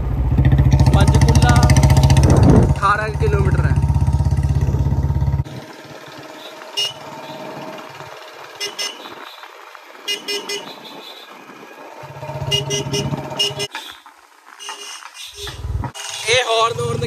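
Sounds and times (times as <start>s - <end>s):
motorcycle engine running: 0.0s - 13.7s, 15.4s - 17.0s
short horn beeps: 6.8s - 7.4s, 8.6s - 9.1s, 10.1s - 11.2s, 12.5s - 13.9s, 14.6s - 15.6s.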